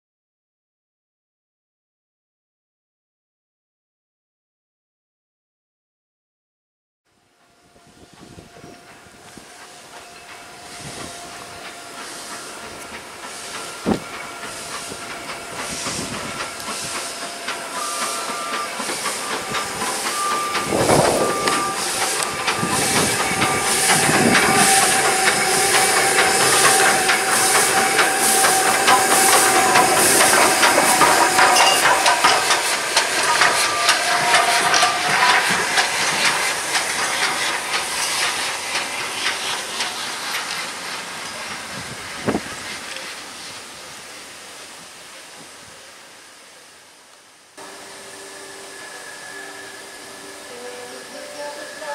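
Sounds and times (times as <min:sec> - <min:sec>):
steam locomotive chuffing: 0:07.3 - 0:46.3, 0:47.5 - 0:51.9
steam hissing: 0:07.4 - 0:51.9
sharp metal clank: 0:31.5 - 0:32.7.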